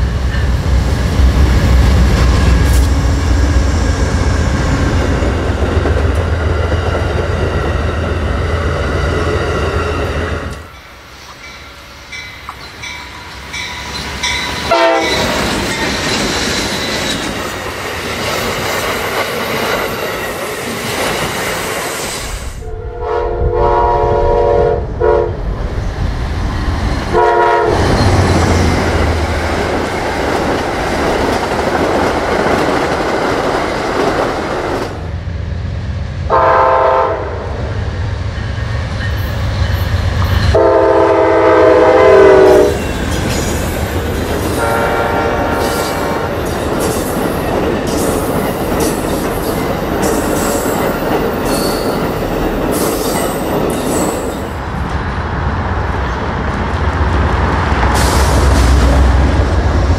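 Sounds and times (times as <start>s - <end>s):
diesel train rumbling past: 0.0s - 59.9s
locomotive horn blasts: 14.7s - 15.2s, 22.6s - 25.4s, 27.1s - 27.9s, 36.3s - 37.4s, 40.5s - 42.8s, 44.6s - 45.8s.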